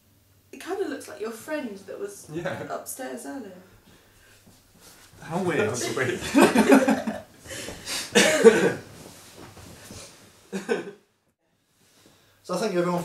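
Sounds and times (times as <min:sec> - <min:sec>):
people laughing: 0:02.3 - 0:02.7, 0:05.5 - 0:07.3, 0:10.6 - 0:11.0
person coughing: 0:08.0 - 0:08.9.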